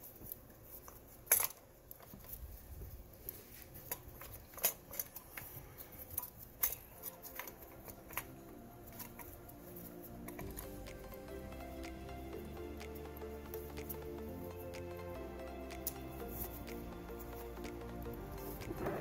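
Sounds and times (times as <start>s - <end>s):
soft background music: 6.6s - 19.0s.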